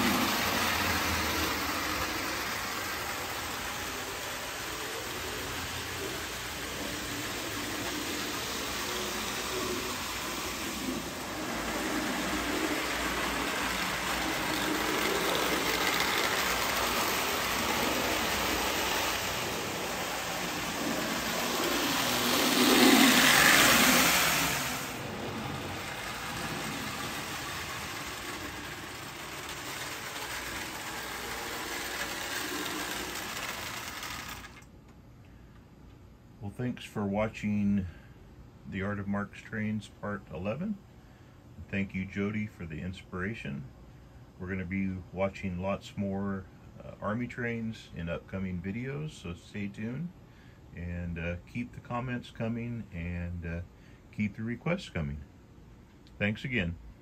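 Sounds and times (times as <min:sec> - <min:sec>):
toy train rumbling on track: 0:00.0 - 0:34.7.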